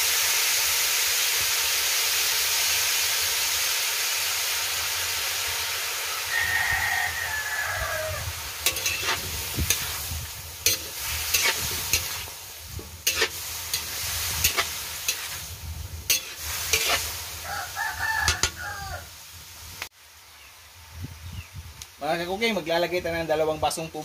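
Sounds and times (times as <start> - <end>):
food sizzling in a wok: 0.0 - 24.0
rooster crowing: 6.0 - 8.4, 17.4 - 19.2
metal spatula scraping a wok: 8.6 - 17.5, 18.1 - 18.6.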